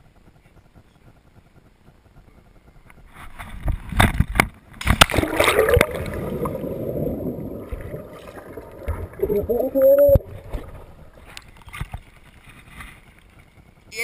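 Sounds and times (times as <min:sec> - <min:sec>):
river water splashing: 0:04.8 - 0:12.5.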